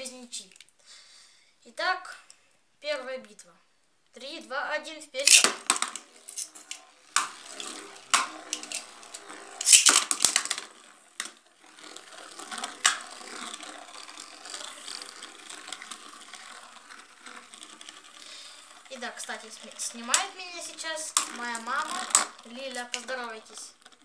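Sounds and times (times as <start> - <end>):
spinning tops clacking: 5.2 - 24.0
tops whirring on plastic: 5.2 - 24.0.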